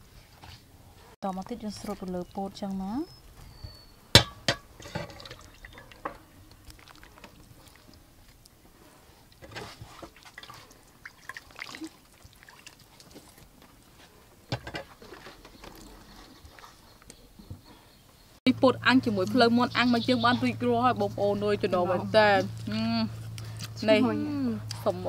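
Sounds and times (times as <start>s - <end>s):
wet sauce drips and dabs: 5.2s - 8.6s, 9.2s - 13.9s.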